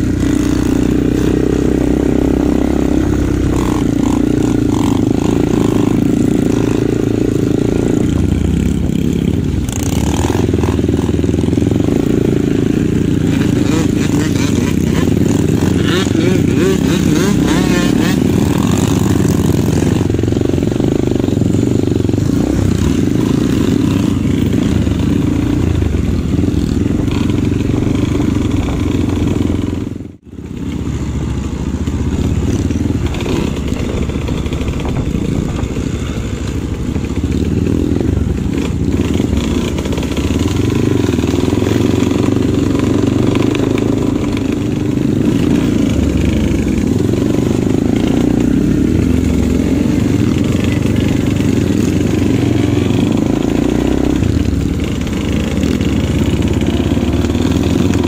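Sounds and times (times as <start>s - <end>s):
dirt bike engines running: 0.0s - 58.0s.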